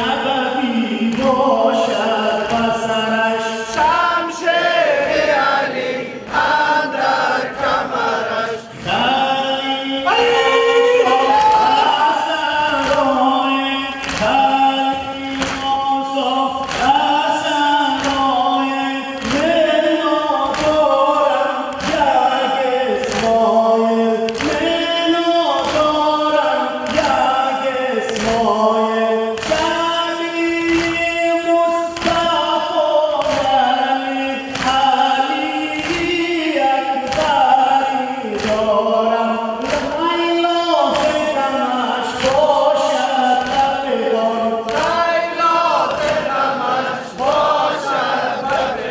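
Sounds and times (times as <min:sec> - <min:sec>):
men chanting in unison: 0:00.0 - 0:48.9
chest beating slaps: 0:12.8 - 0:17.3, 0:19.2 - 0:23.5, 0:31.9 - 0:41.5, 0:42.1 - 0:43.9, 0:44.6 - 0:47.7.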